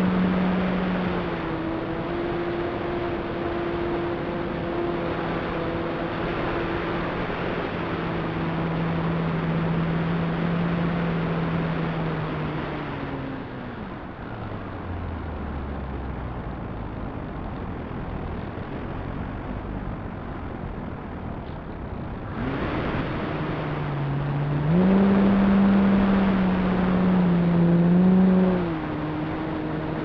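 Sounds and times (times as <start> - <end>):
wind rushing over microphone: 16.4 - 30.0.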